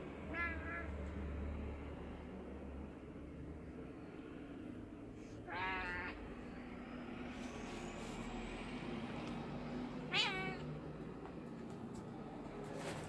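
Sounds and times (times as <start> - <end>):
cat meowing: 0.3 - 1.0, 5.4 - 6.2, 10.1 - 10.7.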